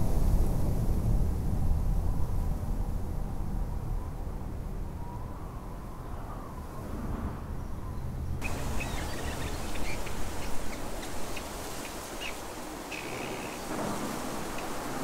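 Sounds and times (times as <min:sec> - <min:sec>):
low traffic rumble: 0:00.0 - 0:15.0
steady rushing outdoor noise: 0:00.0 - 0:15.0
small birds chirping: 0:08.4 - 0:15.0.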